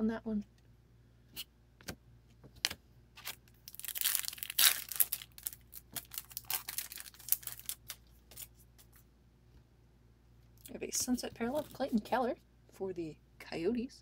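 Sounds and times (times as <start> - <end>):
foil wrapper tearing and crinkling: 3.2 - 8.5.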